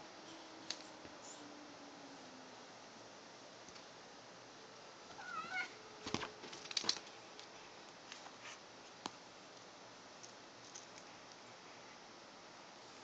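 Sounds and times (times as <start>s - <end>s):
cat chirping meow: 5.2s - 5.8s
clicks and rustling of toy: 6.0s - 7.5s.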